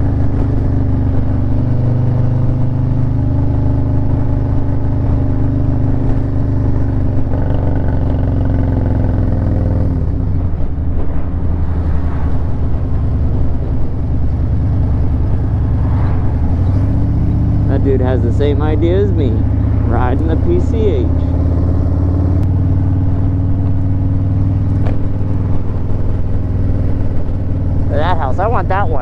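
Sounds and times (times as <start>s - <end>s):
motorcycle engine cruising: 0.0s - 29.0s.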